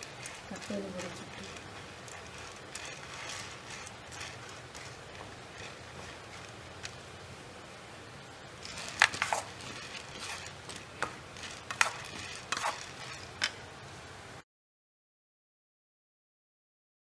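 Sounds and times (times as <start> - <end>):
wooden spatula scraping a pan: 0.0 - 7.1, 8.6 - 13.6
grains rattling: 0.0 - 7.7, 8.5 - 13.6.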